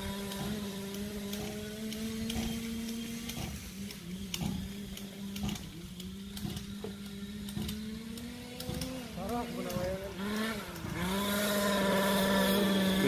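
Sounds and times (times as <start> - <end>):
small two-stroke engine running: 0.0 - 13.0.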